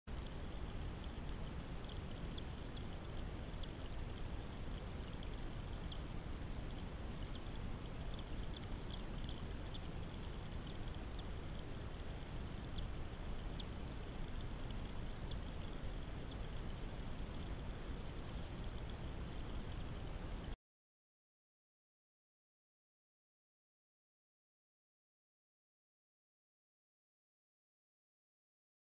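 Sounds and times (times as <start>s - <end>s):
high ticks: 0.1s - 11.7s.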